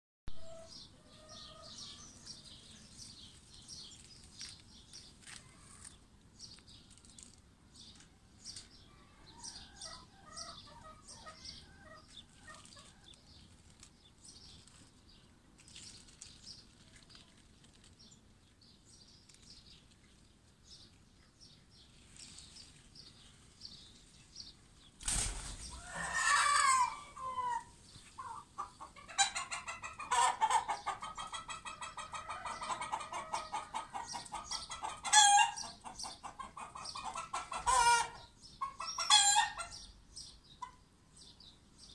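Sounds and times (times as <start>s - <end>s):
small birds chirping: 0.4s - 41.9s
chicken calling loudly: 25.7s - 35.6s, 36.6s - 39.7s.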